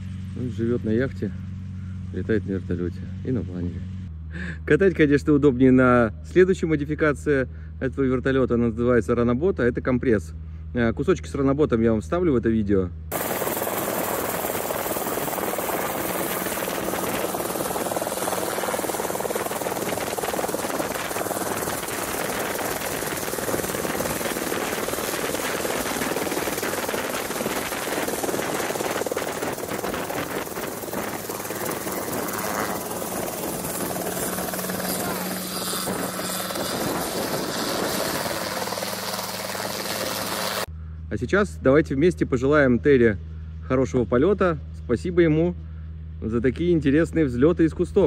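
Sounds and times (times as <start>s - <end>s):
helicopter rotor and engine: 13.1s - 40.7s.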